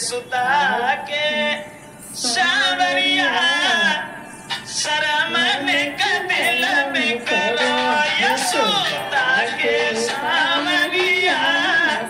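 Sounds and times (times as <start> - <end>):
woman singing unaccompanied: 2.2 - 3.7, 4.8 - 12.0.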